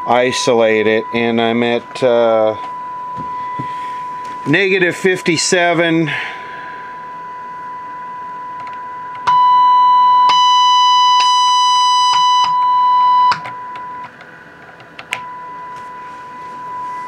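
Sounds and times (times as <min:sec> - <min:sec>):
radio test tone: 0:00.0 - 0:14.1, 0:15.2 - 0:17.0.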